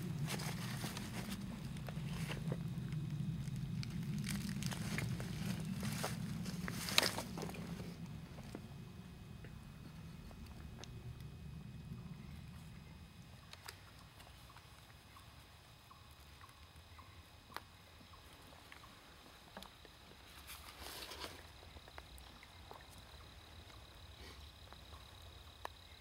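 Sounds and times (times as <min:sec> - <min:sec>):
leaves rustling: 0:00.0 - 0:08.6, 0:20.2 - 0:21.6
footsteps on leaves and stones: 0:00.1 - 0:08.6.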